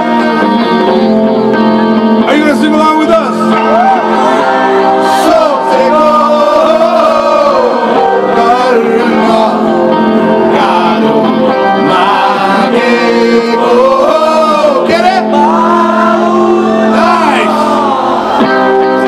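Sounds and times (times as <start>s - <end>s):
guitar band playing: 0.0s - 19.0s
man singing: 5.0s - 19.0s.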